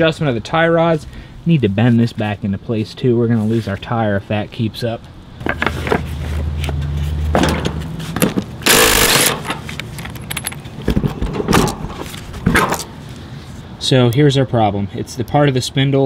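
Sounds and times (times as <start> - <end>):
metal tools clinking: 8.7 - 10.8.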